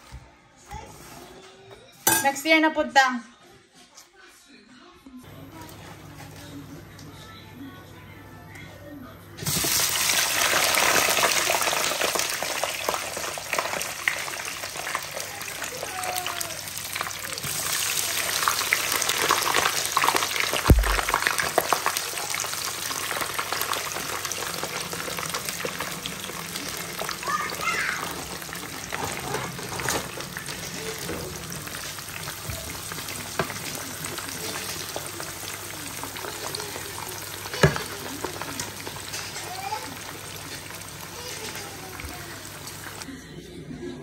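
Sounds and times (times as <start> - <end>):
potatoes sizzling in hot oil: 9.4 - 43.0.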